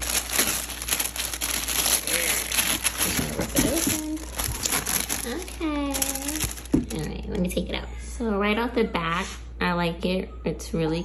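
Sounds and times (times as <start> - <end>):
tissue paper crinkling: 0.0 - 7.1.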